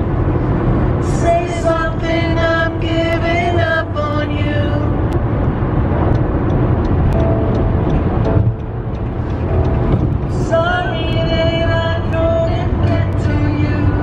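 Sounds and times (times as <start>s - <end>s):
road noise inside car: 0.0s - 14.0s
song with singing: 10.3s - 14.0s.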